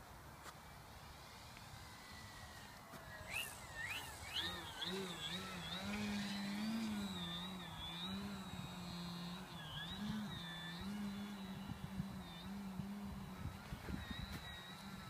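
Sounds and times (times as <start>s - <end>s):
model plane electric motor whining: 0.0s - 15.0s
wind buffeting microphone: 4.2s - 15.0s.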